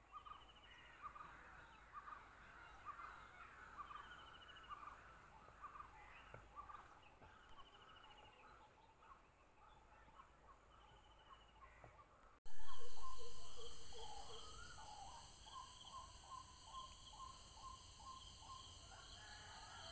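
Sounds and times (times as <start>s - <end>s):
birds chirping: 0.0s - 19.9s
insects trilling in pulses: 12.5s - 19.9s.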